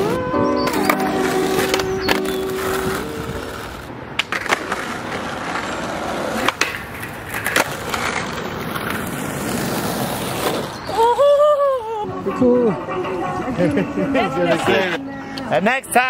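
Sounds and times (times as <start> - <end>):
skateboard clacks: 0.0 - 10.8
skateboard wheels rolling on asphalt: 0.0 - 11.6.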